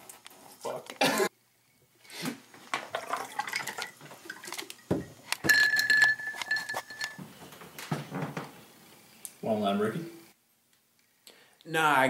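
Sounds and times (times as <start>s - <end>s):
drink being poured: 2.8s - 7.2s
glassware clinking: 2.9s - 7.3s
high ringing tone: 5.4s - 7.3s.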